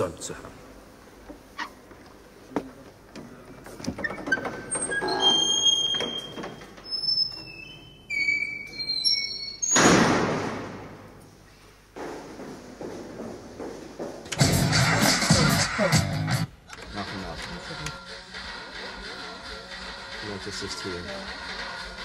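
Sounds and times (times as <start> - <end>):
short high squeaks: 4.1 - 9.9.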